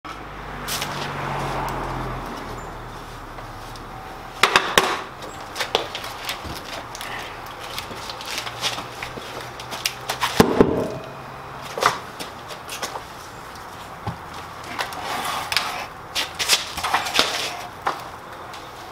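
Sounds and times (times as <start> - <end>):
wooden knocks and clatter: 10.3 - 11.1
heavy wood thump on concrete: 10.4 - 11.1.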